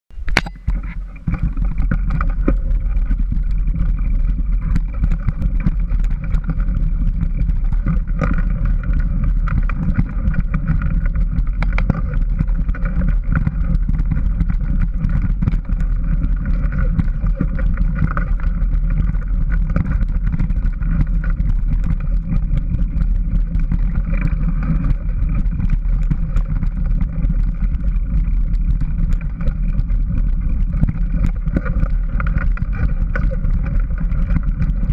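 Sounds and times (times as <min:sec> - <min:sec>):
wind and vibration rumble: 0:00.1 - 0:34.9.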